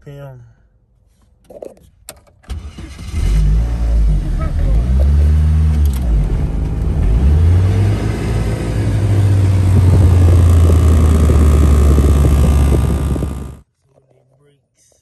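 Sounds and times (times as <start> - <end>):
car engine revving: 3.1 - 13.6.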